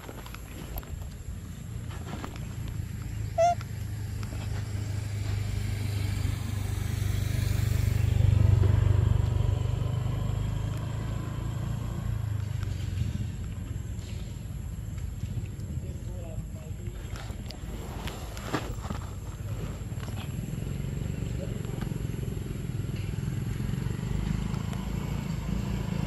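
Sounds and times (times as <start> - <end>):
vehicle passing rumble: 0.0 - 26.0
short high-pitched call: 3.3 - 3.6.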